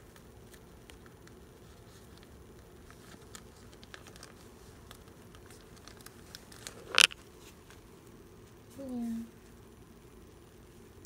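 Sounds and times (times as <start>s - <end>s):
plastic sleeves crinkling: 0.4s - 7.8s.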